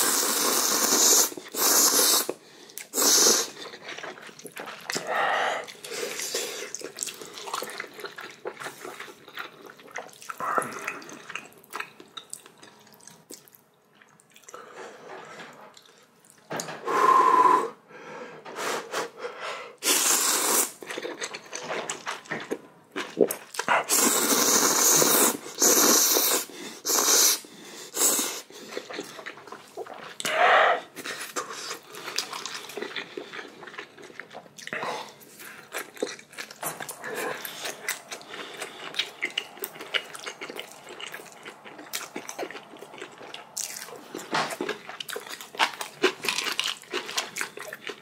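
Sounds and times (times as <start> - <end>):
noodles being slurped: 0.0 - 11.5, 23.4 - 48.0
wet chewing clicks: 35.4 - 48.0.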